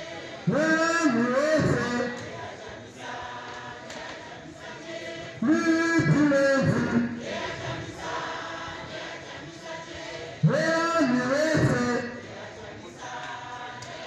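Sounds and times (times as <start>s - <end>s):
crowd chanting in unison: 0.0s - 14.0s
person leading the chant: 0.4s - 2.3s, 5.4s - 7.4s, 10.4s - 12.2s.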